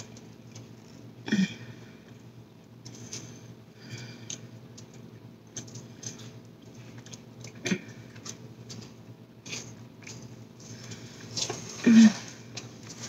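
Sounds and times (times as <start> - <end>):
person chewing: 2.8 - 13.0.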